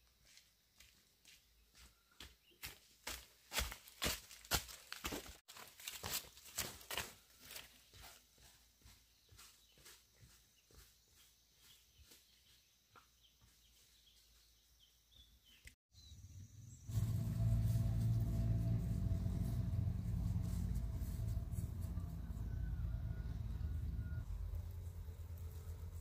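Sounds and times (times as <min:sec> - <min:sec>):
bird chirps: 0:09.2 - 0:16.9
motor engine humming: 0:16.7 - 0:26.0.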